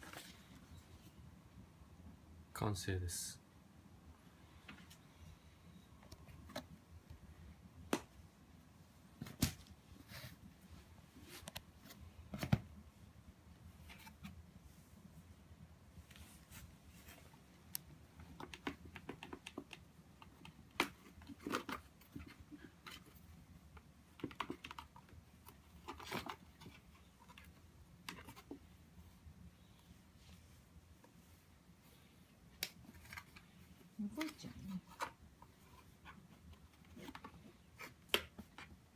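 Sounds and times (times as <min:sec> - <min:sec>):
clicking and scraping on cardboard: 0:18.2 - 0:28.7, 0:34.2 - 0:38.8.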